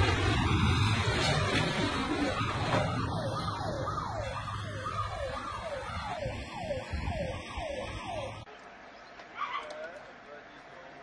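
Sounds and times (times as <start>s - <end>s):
siren yelping: 0.1s - 8.5s.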